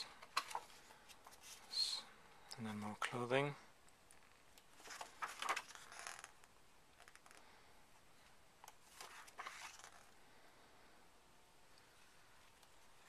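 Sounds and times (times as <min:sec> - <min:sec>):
book pages turning: 0:00.2 - 0:01.7, 0:04.6 - 0:06.4, 0:08.6 - 0:10.2.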